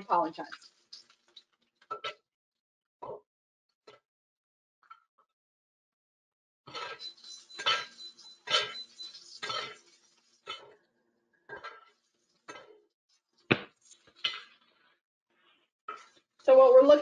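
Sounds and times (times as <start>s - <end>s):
metal spoon scraping skillet: 6.8s - 10.6s.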